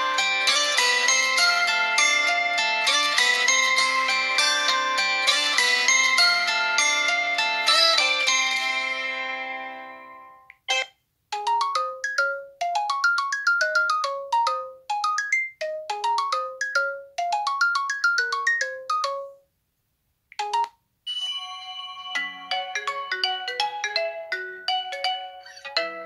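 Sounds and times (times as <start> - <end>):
ringtone with long overlapping notes: 0.0 - 19.5, 20.4 - 26.0
phone ringtone with rising runs: 20.4 - 26.0.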